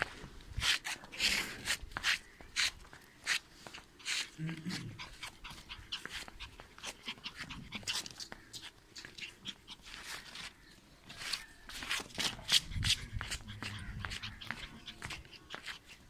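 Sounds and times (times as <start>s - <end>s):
puppy panting: 3.9s - 10.5s, 12.1s - 16.0s.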